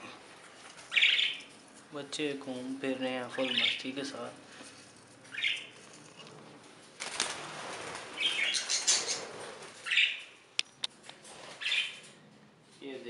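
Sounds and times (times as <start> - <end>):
budgerigars chirping: 0.9 - 1.5, 3.4 - 3.9, 5.3 - 5.8, 8.2 - 10.2, 11.6 - 12.0
wings fluttering: 4.9 - 10.0, 11.0 - 12.2.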